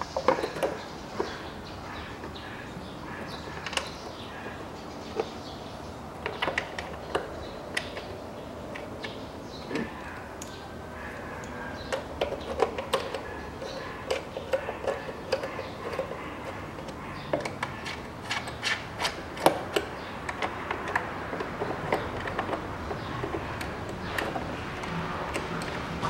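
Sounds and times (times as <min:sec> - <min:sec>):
socket tool clicking: 0:16.8 - 0:26.0.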